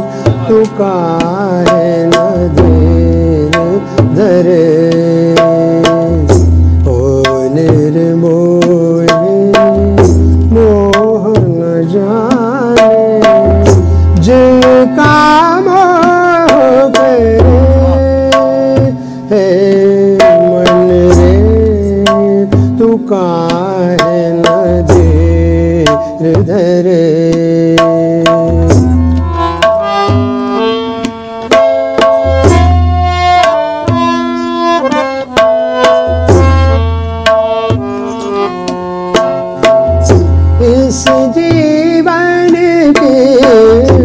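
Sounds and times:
man singing: 0:00.0 - 0:29.6, 0:39.7 - 0:44.0
harmonium and tabla playing: 0:00.0 - 0:44.0.

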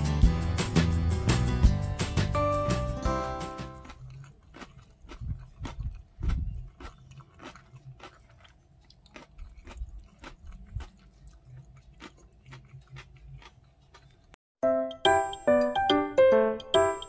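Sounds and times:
dull chewing thuds: 0:03.5 - 0:14.4
crunching of crisp radish: 0:03.8 - 0:14.4.

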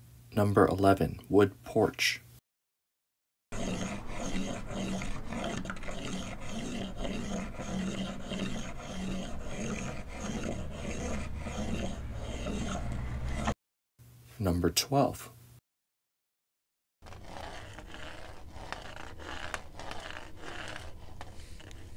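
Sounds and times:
cane scraping on wooden deck: 0:03.5 - 0:13.6, 0:17.0 - 0:21.9.

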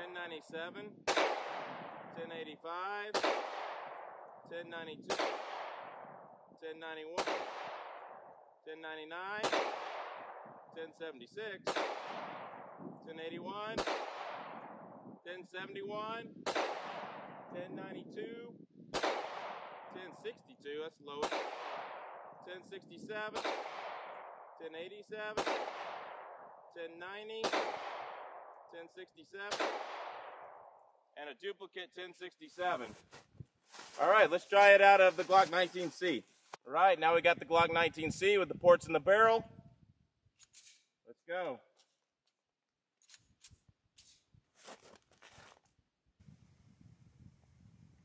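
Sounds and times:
pistol shots echoing: 0:01.0 - 0:02.2, 0:03.1 - 0:04.5, 0:05.1 - 0:06.4, 0:07.2 - 0:08.4, 0:09.4 - 0:10.8, 0:11.6 - 0:12.9, 0:13.7 - 0:14.9, 0:16.4 - 0:17.5, 0:18.9 - 0:20.0, 0:21.2 - 0:22.4, 0:23.3 - 0:24.6, 0:25.3 - 0:26.6, 0:27.4 - 0:28.7, 0:29.5 - 0:30.8.

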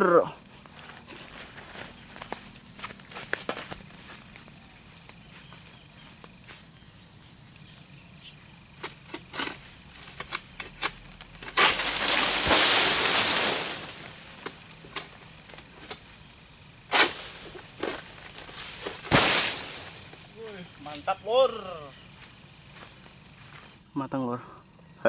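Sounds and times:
insects chirring: 0:00.0 - 0:25.0
sickle clicking among palm fronds: 0:00.9 - 0:04.1, 0:08.8 - 0:16.2, 0:16.9 - 0:21.1
loud rustling scrape: 0:11.5 - 0:14.3.

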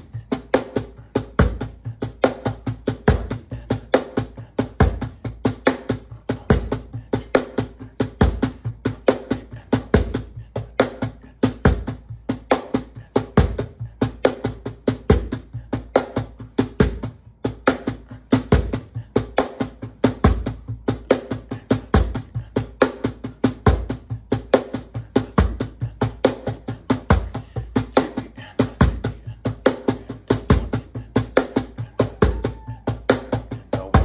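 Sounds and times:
cajon played by hand: 0:10.8 - 0:34.0.

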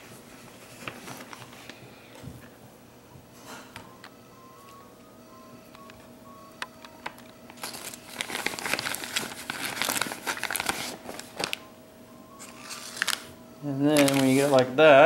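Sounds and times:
plastic bag crinkling: 0:07.6 - 0:11.7, 0:12.4 - 0:14.8.

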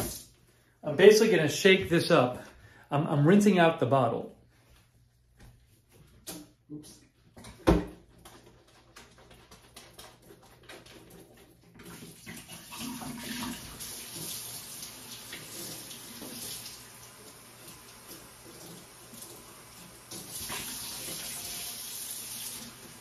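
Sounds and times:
tap water running into sink: 0:10.7 - 0:23.0.

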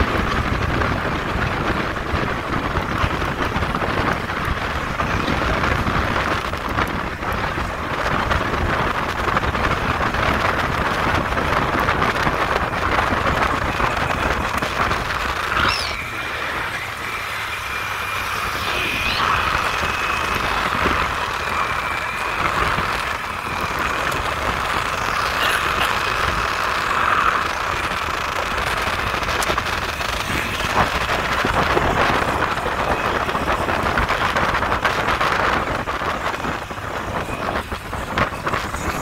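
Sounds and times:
motorbike engine running: 0:00.0 - 0:39.0
wind rushing over microphone: 0:00.0 - 0:39.0
thin high whine: 0:13.5 - 0:28.8.

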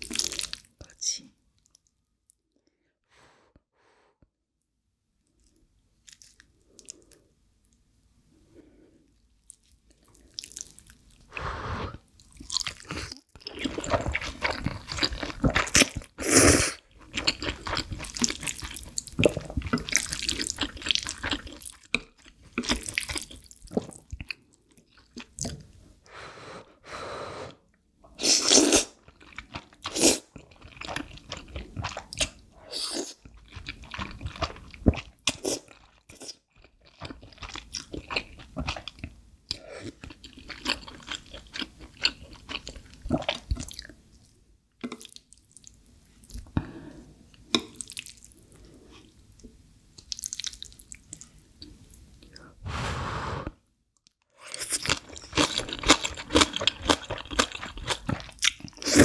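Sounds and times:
chewing and mouth clicks: 0:05.4 - 0:07.1, 0:54.5 - 0:58.9.

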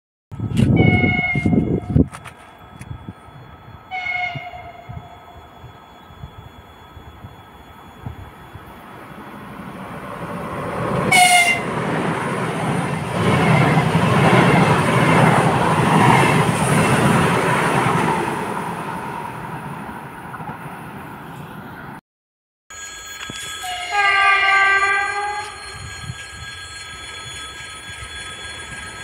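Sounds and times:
train passing: 0:00.4 - 0:22.0, 0:22.8 - 0:29.0
train horn toot: 0:00.7 - 0:02.0, 0:03.9 - 0:05.2, 0:11.1 - 0:11.7, 0:23.6 - 0:25.8.

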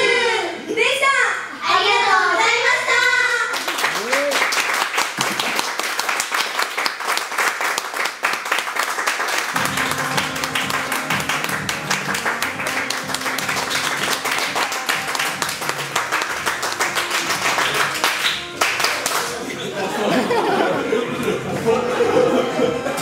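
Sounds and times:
audience clapping: 0:03.0 - 0:19.6
music: 0:09.6 - 0:23.0.

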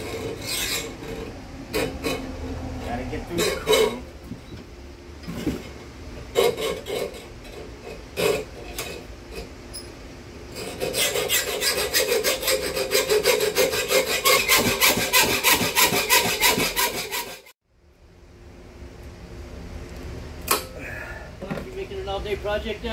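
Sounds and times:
hacksaw cutting metal: 0:00.0 - 0:04.1, 0:06.3 - 0:09.5, 0:10.5 - 0:17.6.

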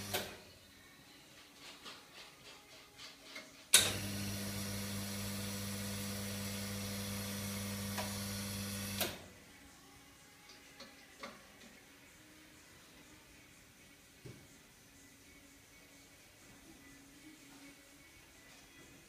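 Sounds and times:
espresso machine pump humming: 0:03.9 - 0:09.1.

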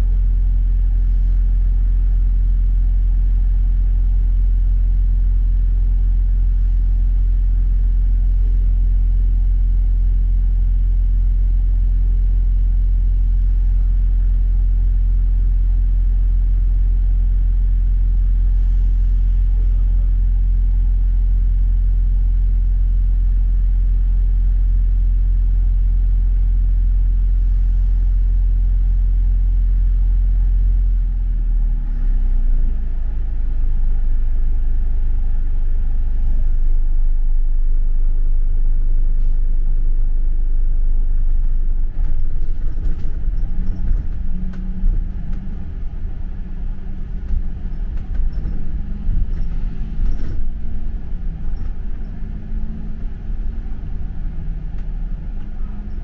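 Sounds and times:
bus engine drone: 0:00.0 - 0:56.0.

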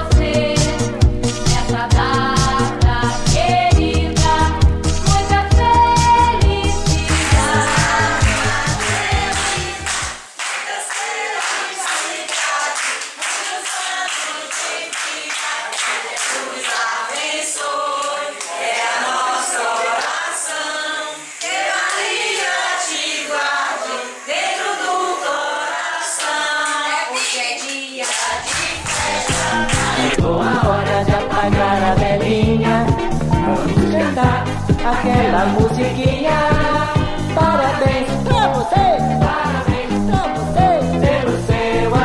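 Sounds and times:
group of people singing: 0:00.0 - 0:42.0
hands clapping to a beat: 0:06.9 - 0:20.6, 0:21.3 - 0:22.7, 0:26.2 - 0:31.2.

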